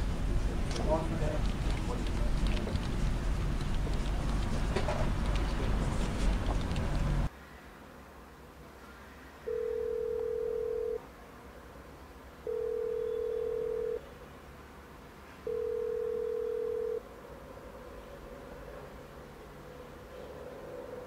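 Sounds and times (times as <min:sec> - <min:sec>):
telephone ringback tone: 0:09.5 - 0:11.0, 0:12.5 - 0:14.0, 0:15.5 - 0:17.0.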